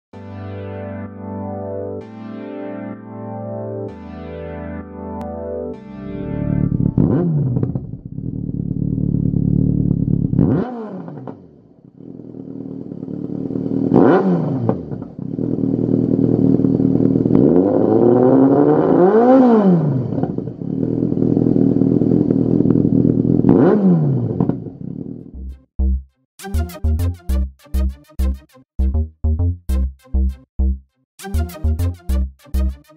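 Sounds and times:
motorcycle engine revving: 6.6 - 25.5.

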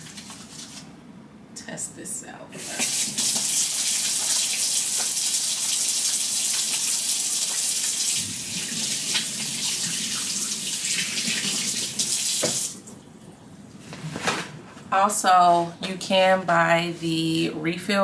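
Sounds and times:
hands washing under water: 2.6 - 12.9
tap running into sink: 2.8 - 5.2, 11.1 - 12.8.

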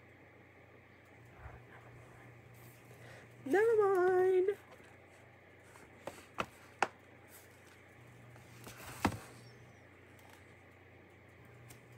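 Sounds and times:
faint low hum: 0.0 - 11.9.

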